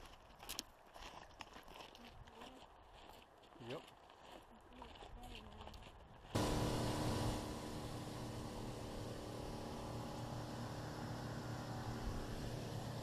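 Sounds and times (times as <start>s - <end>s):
motorboat engine drone: 6.4s - 13.0s
water rushing off hull: 6.4s - 13.0s.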